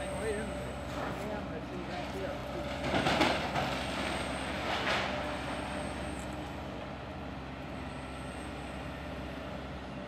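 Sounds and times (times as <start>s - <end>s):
excavator diesel engine running: 0.0s - 10.0s.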